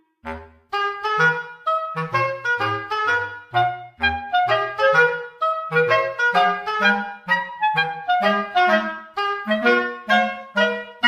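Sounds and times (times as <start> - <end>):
bouncy background music: 0.0 - 11.0.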